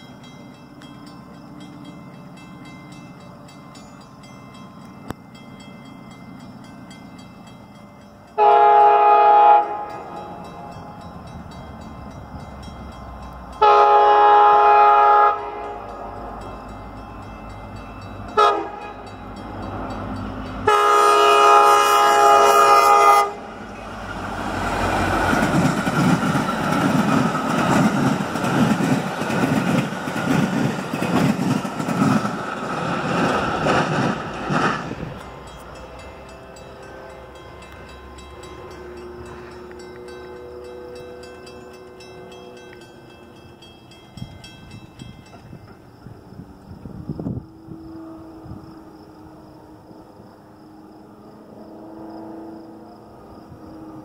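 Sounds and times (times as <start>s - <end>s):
crossing bells ringing: 0.0s - 49.7s
train wheels rumbling on rails: 0.0s - 54.0s
train air horn: 8.4s - 10.9s, 13.6s - 15.9s, 18.4s - 19.1s, 20.6s - 23.5s, 47.2s - 49.0s, 51.0s - 53.1s.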